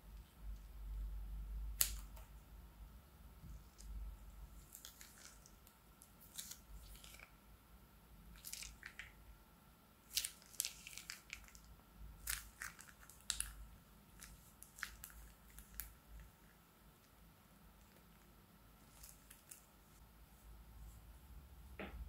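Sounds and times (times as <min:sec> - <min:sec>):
squishy slime crackles: 0:04.6 - 0:07.4, 0:08.3 - 0:09.2, 0:10.0 - 0:16.3, 0:18.9 - 0:19.7.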